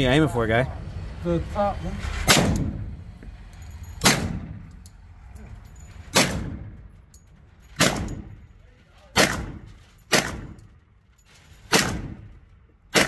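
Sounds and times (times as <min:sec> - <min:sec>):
gunshots echoing indoors: 0:09.2 - 0:10.6.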